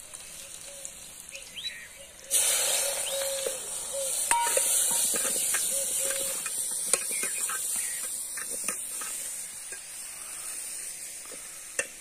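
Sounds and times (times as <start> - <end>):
garlic sizzling in oil: 0.0 - 12.0
birds chirping: 0.2 - 8.6.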